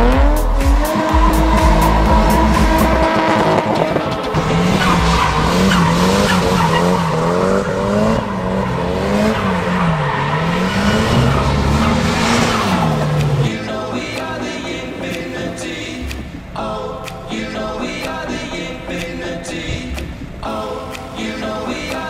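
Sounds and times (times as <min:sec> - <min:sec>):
car engine revving: 0:00.0 - 0:20.6
tyres squealing: 0:01.0 - 0:13.5.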